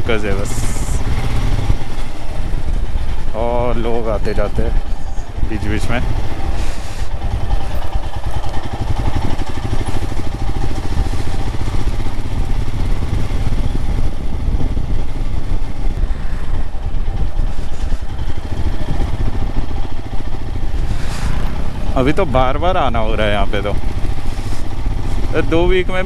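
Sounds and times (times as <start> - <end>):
motorcycle engine running: 0.0 - 26.0
wind rumble on microphone: 10.7 - 19.7.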